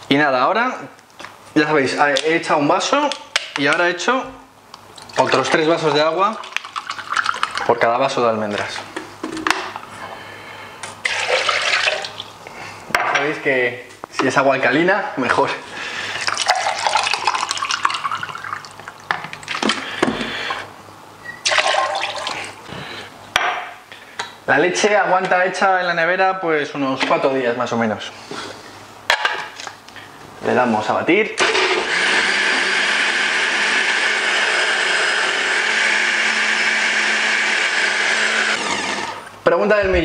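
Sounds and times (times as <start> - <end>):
water splashing into blender jar: 5.0 - 7.7, 11.0 - 12.2, 16.2 - 19.8, 21.4 - 22.4
water pouring into glass: 16.2 - 19.0, 21.4 - 22.5
blender running: 31.4 - 39.3.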